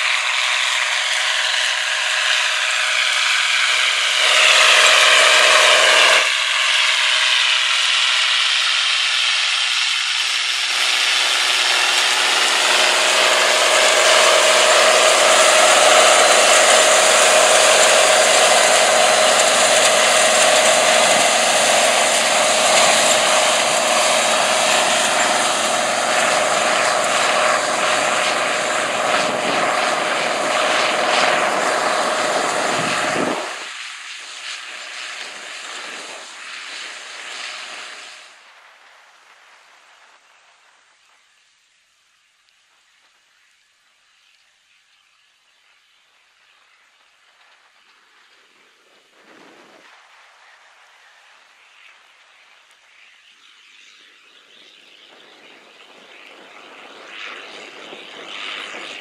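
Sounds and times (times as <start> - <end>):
tractor diesel engine under load: 0.0 - 33.7.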